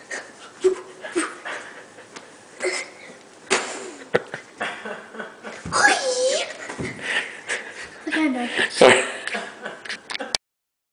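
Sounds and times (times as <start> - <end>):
child stomping on hard floor: 5.6 - 5.9, 6.7 - 7.1.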